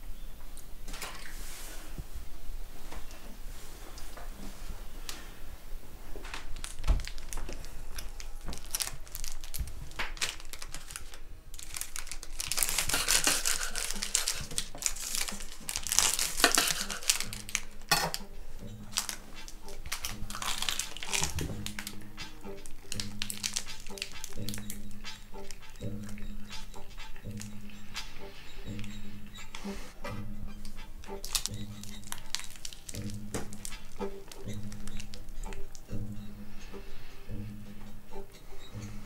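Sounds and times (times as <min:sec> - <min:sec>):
foil wrappers crinkling: 0:06.2 - 0:27.5, 0:31.0 - 0:35.9.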